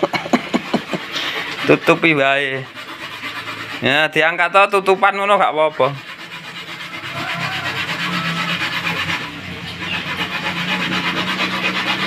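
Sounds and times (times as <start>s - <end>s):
coconut grating machine rasping: 0.0s - 12.0s
low motor hum: 6.2s - 12.0s.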